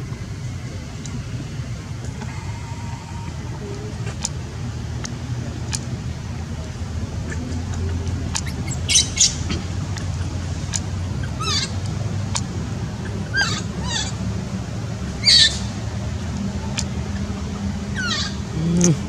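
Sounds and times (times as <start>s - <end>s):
low background hum: 0.0s - 19.0s
baby monkey squeaking: 8.4s - 9.4s.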